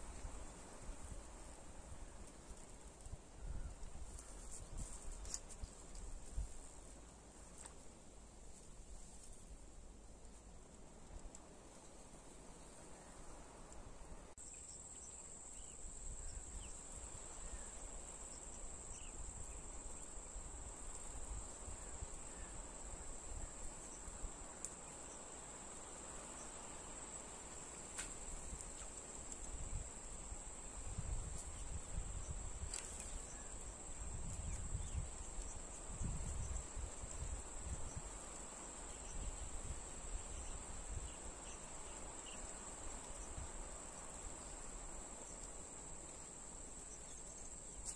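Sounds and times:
insects droning: 10.3s - 47.9s.

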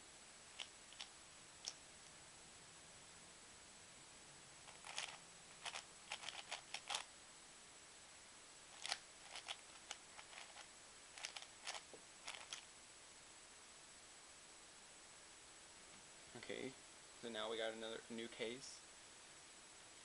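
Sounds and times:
plastic puzzle clicking turns: 4.7s - 7.0s, 8.8s - 10.6s, 11.2s - 12.6s.

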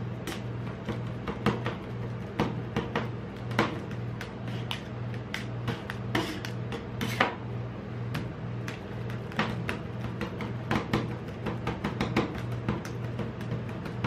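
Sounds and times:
steady low hum: 0.0s - 14.0s
metal spatulas scraping ice cream: 6.1s - 7.3s.

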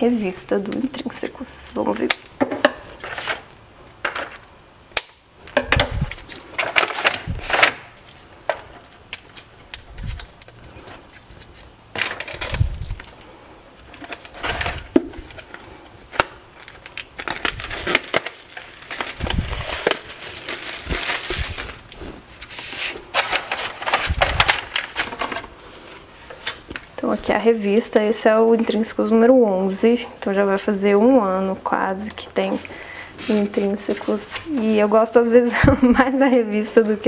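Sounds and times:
wrapping paper crinkling and rustling: 3.0s - 4.6s, 6.0s - 25.6s.

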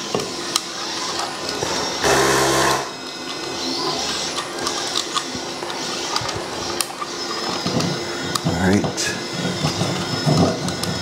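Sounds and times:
brief buzz: 2.0s - 3.0s.

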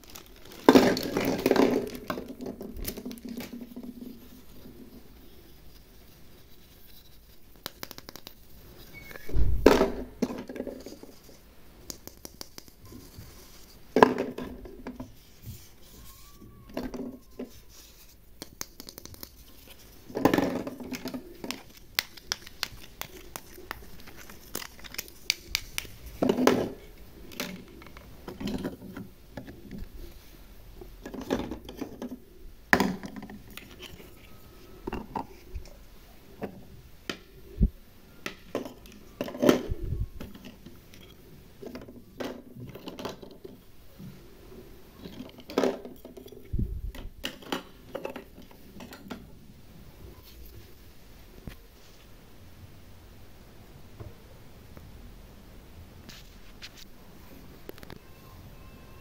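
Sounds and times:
plastic toys clacking and rattling: 0.0s - 5.0s, 7.6s - 15.2s, 16.0s - 30.2s, 31.0s - 35.8s, 38.2s - 43.7s, 45.0s - 49.3s
plastic scraping and rustling: 0.0s - 18.3s, 19.1s - 35.8s, 37.6s - 44.2s.

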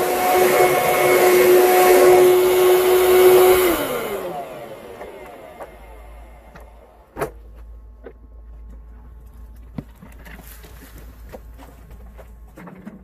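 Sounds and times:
low steady hum: 4.1s - 13.0s.

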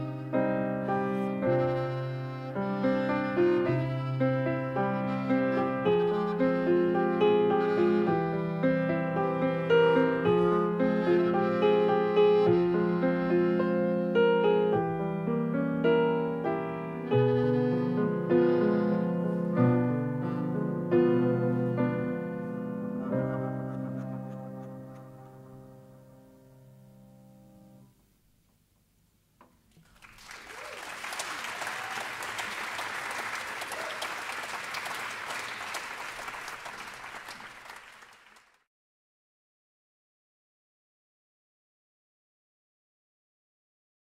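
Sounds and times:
piano chords: 0.0s - 28.1s
audience applauding: 29.7s - 38.7s.

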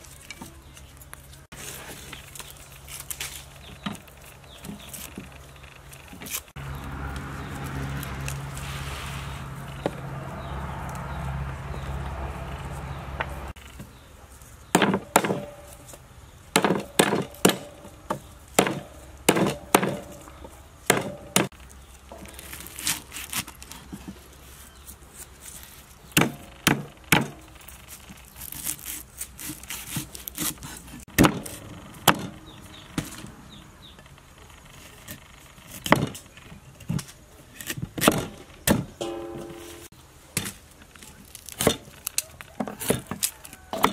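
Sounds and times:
cleaver chopping on wooden board: 14.7s - 15.6s, 16.5s - 20.2s, 20.9s - 21.5s, 29.8s - 32.3s.

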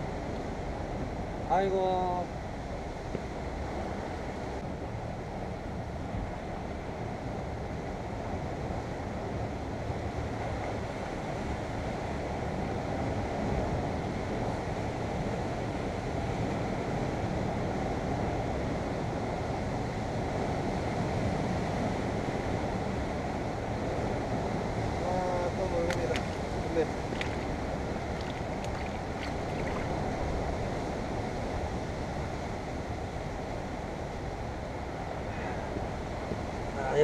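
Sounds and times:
wind on microphone: 2.2s - 37.0s
sea waves against rocks: 25.5s - 31.2s.

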